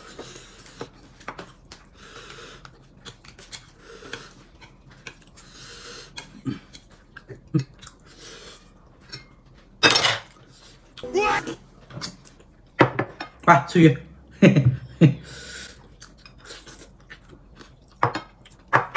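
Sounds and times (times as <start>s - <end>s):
chewing: 0.1s - 9.8s, 15.6s - 18.7s
breathing: 1.9s - 2.7s, 5.4s - 6.3s, 15.2s - 15.9s.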